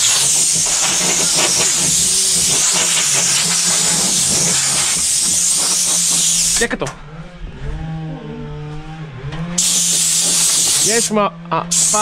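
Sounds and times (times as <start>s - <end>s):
compressed air hissing: 0.0s - 6.7s, 9.6s - 12.0s.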